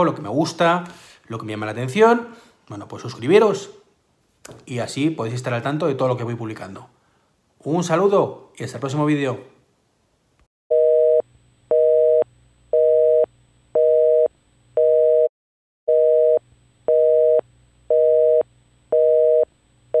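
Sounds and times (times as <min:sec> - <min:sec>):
telephone busy signal: 0:15.9 - 0:20.0.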